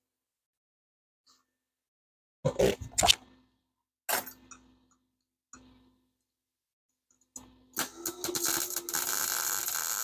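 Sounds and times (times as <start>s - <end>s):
welder arc crackling: 7.8s - 10.0s
welder sputters: 7.8s - 10.0s.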